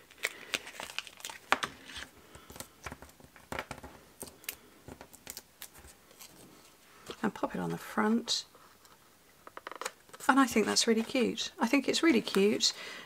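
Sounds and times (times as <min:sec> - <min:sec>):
paper and foam crinkling: 0:00.0 - 0:07.3.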